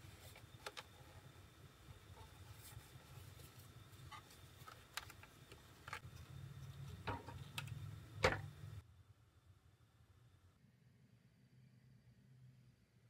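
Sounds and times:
low hum: 0:05.9 - 0:13.0.

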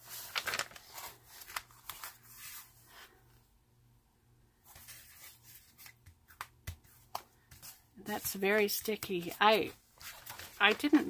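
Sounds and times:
paper cover crackling and rustling: 0:00.0 - 0:02.8, 0:08.2 - 0:11.0.

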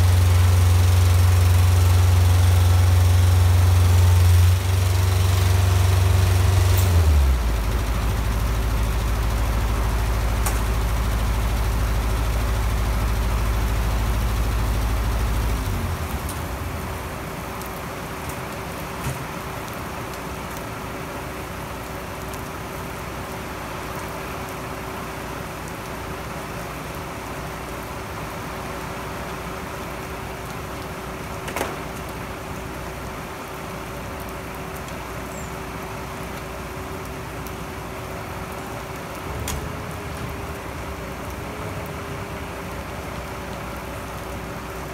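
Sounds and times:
truck engine running: 0:00.0 - 0:19.4
steady rain: 0:00.0 - 0:44.9.

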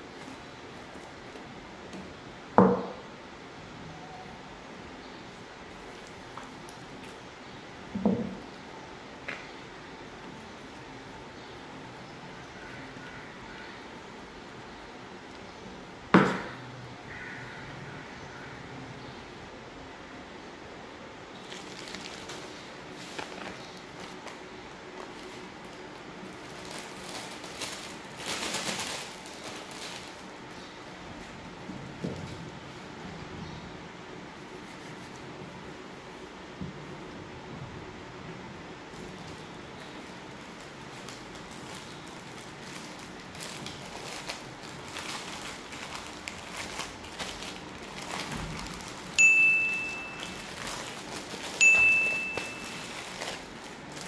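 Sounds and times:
plastic bag crinkling: 0:21.3 - 0:30.7, 0:38.9 - 0:54.0
bright chime dings: 0:49.2 - 0:50.5, 0:51.6 - 0:53.0.

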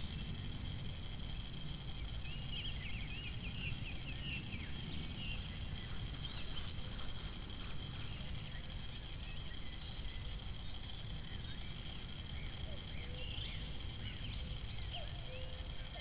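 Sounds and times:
birds chirping: 0:00.0 - 0:16.0
low rumble: 0:00.0 - 0:16.0.

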